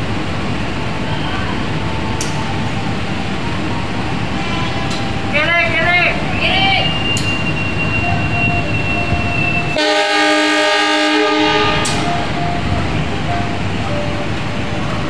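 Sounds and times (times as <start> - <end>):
train rumbling on rails: 0.0 - 15.0
locomotive horn blast: 4.2 - 15.0.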